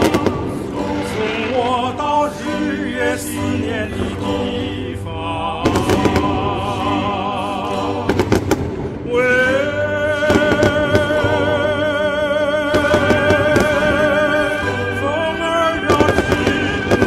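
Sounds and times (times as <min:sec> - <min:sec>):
fireworks bangs: 0:00.0 - 0:02.4, 0:05.6 - 0:07.1, 0:08.0 - 0:11.9, 0:12.6 - 0:14.7, 0:15.6 - 0:17.0
person singing slow song: 0:00.0 - 0:17.0.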